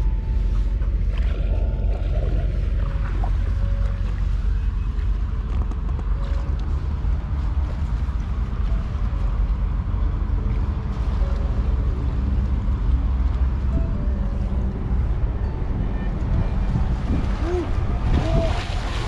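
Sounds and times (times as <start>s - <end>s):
wind buffeting microphone: 11.7s - 19.0s.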